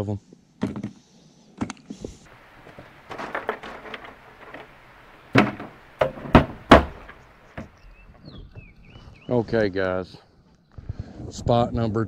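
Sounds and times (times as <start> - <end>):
bucket set down thud: 2.3 - 7.7
sharp knocks: 2.4 - 7.8
plastic bucket clicks and rattles: 2.6 - 7.2.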